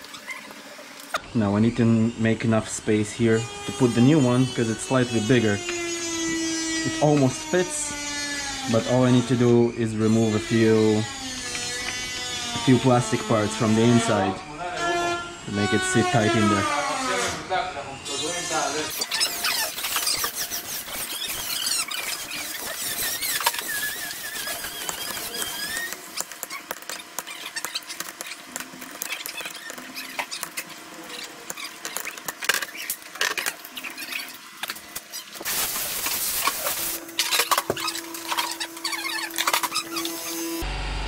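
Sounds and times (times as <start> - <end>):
plastic squeaking: 18.3 - 40.6.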